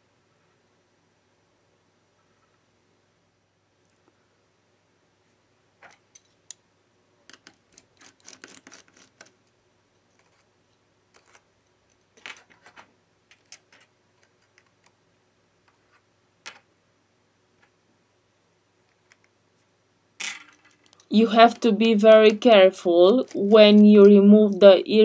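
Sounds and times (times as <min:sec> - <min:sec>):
screwdriver clicking on small screws: 0:07.3 - 0:09.3.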